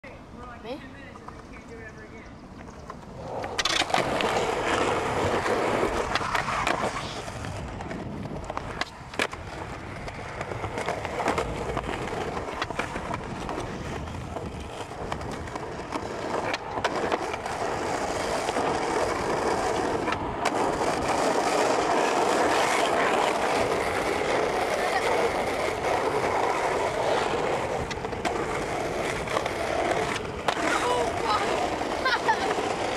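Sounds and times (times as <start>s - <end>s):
skateboard wheels rolling on concrete: 0.0s - 32.9s
skateboard clicks: 1.0s - 32.9s.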